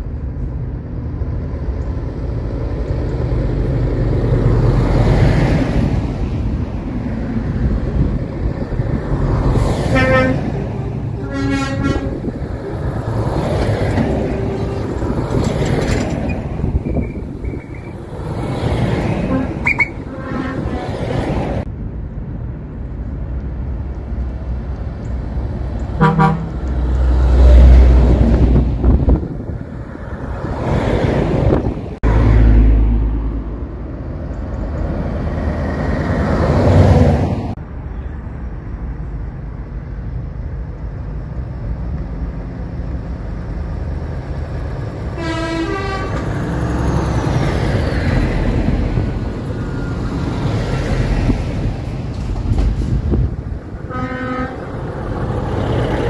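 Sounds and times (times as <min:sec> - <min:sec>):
diesel engines and tyres: 0:00.0 - 0:56.0
heavy trucks driving past: 0:00.0 - 0:56.0
air horn blast: 0:09.9 - 0:12.3, 0:19.3 - 0:21.2, 0:26.0 - 0:26.6, 0:45.2 - 0:46.3, 0:53.9 - 0:54.7.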